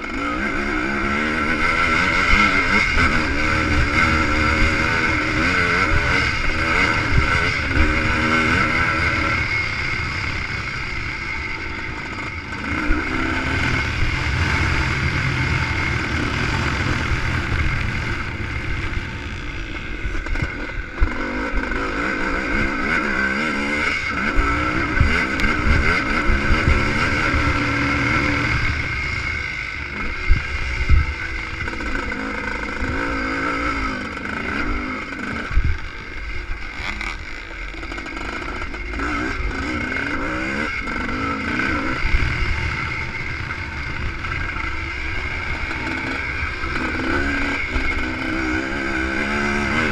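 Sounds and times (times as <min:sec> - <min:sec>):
motorcycle engine revving: 0:00.0 - 0:49.9
wind rushing over microphone: 0:24.1 - 0:33.0.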